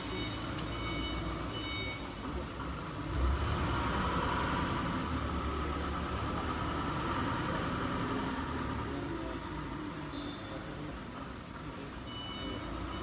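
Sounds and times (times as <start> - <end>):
machinery rumble and whir: 0.0 - 13.0.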